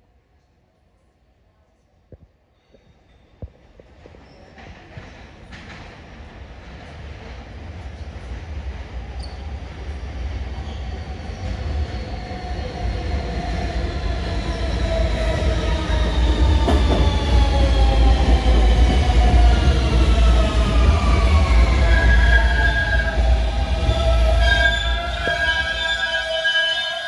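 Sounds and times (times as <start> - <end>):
subway train rumbling into station: 2.4 - 27.0
train clack: 3.5 - 8.3, 16.0 - 21.4.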